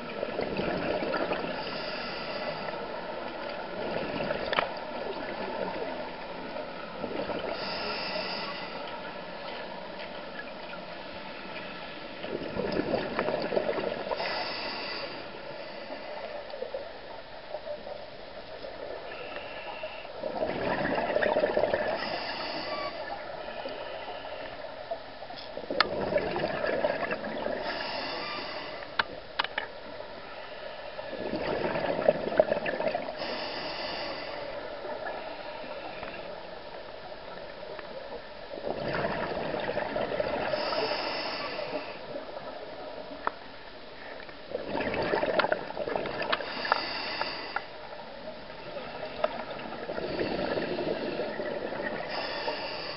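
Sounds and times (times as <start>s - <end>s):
exhaled bubbles rushing underwater: 0.0s - 14.9s, 20.2s - 25.0s, 25.6s - 28.6s, 30.9s - 33.6s, 36.8s - 43.2s, 44.4s - 47.0s, 48.3s - 52.9s
regulator hiss: 7.5s - 8.9s, 14.1s - 16.1s, 27.6s - 29.1s, 33.2s - 36.2s, 40.5s - 42.2s, 46.4s - 47.8s, 52.1s - 52.9s.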